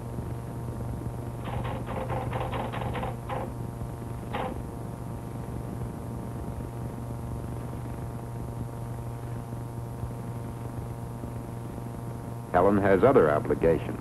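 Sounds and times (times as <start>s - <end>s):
film soundtrack hum and hiss: 0.0s - 14.0s.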